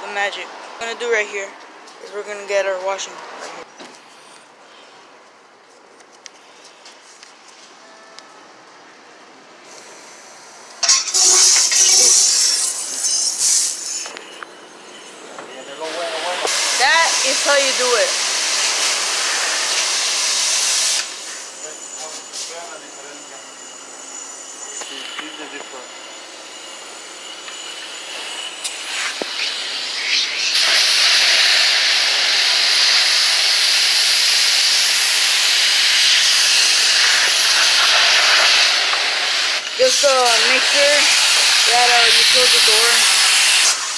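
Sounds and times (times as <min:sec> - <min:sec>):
pressure washer spraying water: 0:10.8 - 0:14.1, 0:15.8 - 0:21.5, 0:27.8 - 0:43.9.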